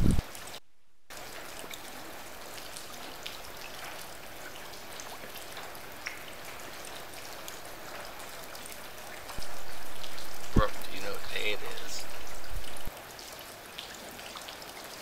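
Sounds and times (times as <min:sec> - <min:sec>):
rain falling: 0:00.0 - 0:15.0
raindrop ticks: 0:01.1 - 0:12.9.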